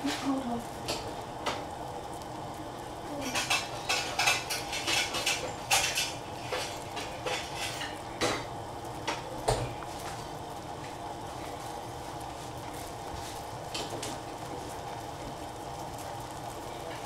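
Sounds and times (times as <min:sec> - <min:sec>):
steady low hiss: 0:00.0 - 0:17.0
dishes and utensils clinking: 0:03.2 - 0:08.5.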